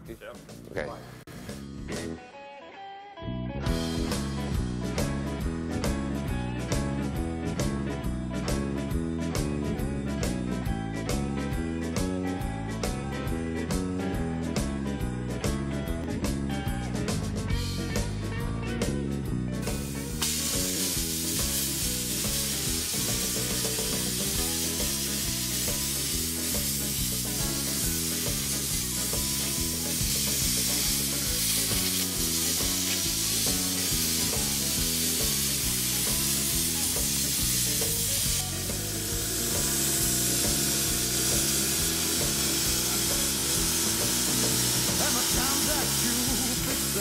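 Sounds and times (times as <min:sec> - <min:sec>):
background music: 0:00.0 - 0:47.0
plasma cutter hissing: 0:19.7 - 0:47.0.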